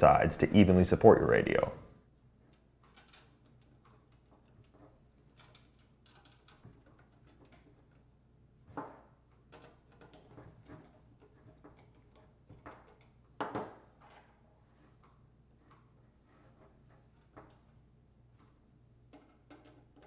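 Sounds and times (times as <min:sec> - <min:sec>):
screwdriver and metal screws clicking: 0:02.5 - 0:08.1.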